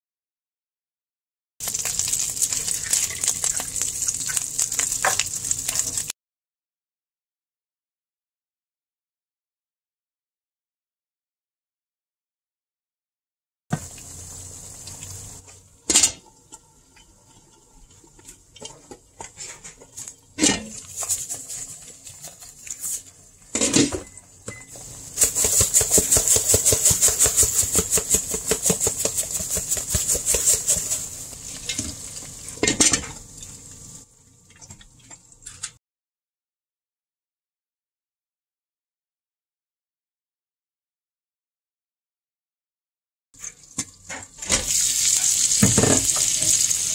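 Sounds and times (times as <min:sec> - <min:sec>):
eggs sizzling in a skillet: 0:01.6 - 0:06.1, 0:13.7 - 0:23.5, 0:24.7 - 0:34.1, 0:43.6 - 0:46.9
seasoning shaker rattling: 0:01.6 - 0:06.1, 0:20.8 - 0:23.2, 0:24.9 - 0:32.6, 0:44.6 - 0:46.9
utensils knocking against pan: 0:25.2 - 0:31.0.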